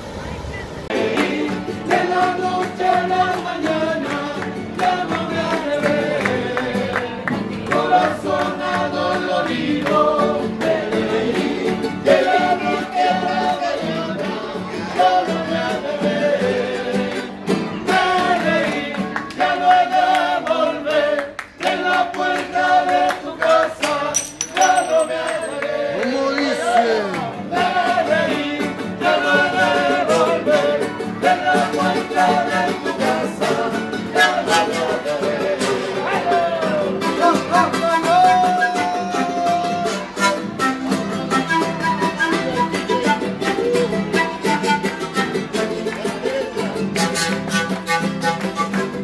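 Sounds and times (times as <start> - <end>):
strummed acoustic guitar: 0.9 - 21.2, 25.1 - 49.0
men singing: 0.9 - 40.0
hand clapping: 1.1 - 10.8, 18.4 - 27.4, 44.8 - 49.0.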